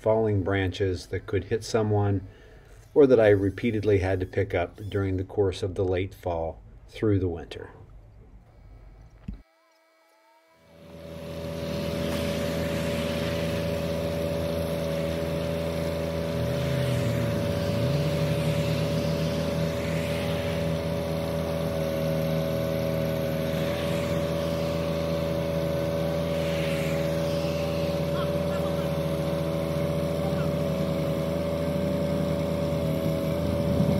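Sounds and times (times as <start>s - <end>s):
tractor engine running: 10.8s - 33.9s.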